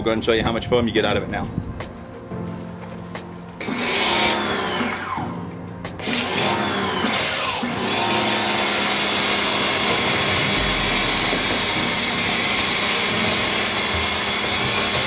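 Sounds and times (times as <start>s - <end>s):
electric pressure washer running: 3.6s - 5.4s, 6.0s - 15.0s
foam cannon spraying hiss: 8.4s - 15.0s.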